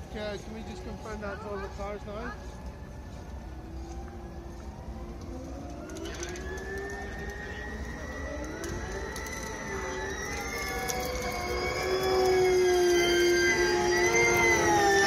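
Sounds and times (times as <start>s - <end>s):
electric race cars whining: 4.7s - 15.0s.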